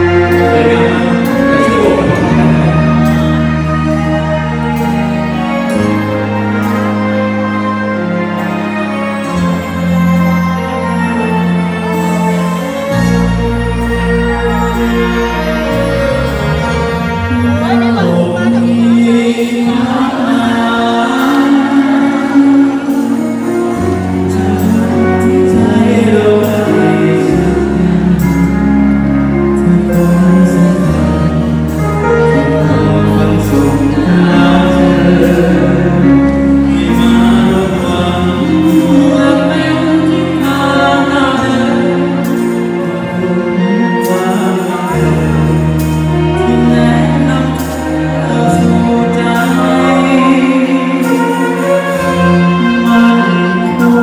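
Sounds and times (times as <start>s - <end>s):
held bass notes: 0.0s - 54.0s
person singing slow song: 0.0s - 54.0s.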